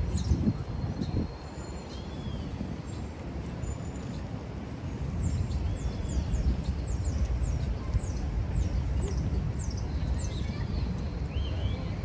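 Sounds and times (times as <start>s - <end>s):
city street rumble: 0.0s - 12.0s.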